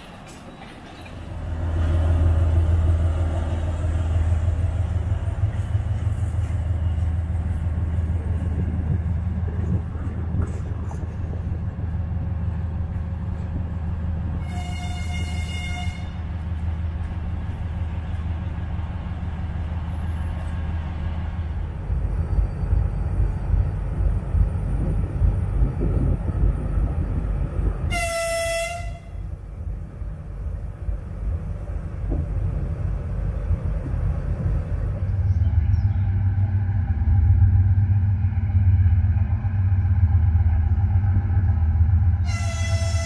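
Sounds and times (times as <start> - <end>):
diesel locomotive engine drone: 0.0 - 43.0
train horn blast: 14.4 - 16.2, 27.9 - 29.3, 42.2 - 43.0.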